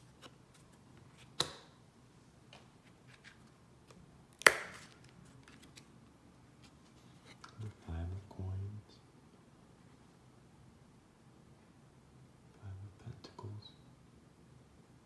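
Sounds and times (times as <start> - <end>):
cards slapped down: 1.4 - 1.7, 4.4 - 5.1.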